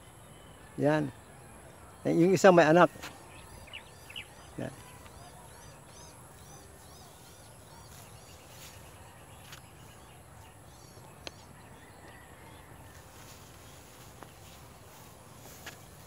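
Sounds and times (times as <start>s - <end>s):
high insect hum: 1.2s - 16.0s
small bird chirping: 2.5s - 12.0s.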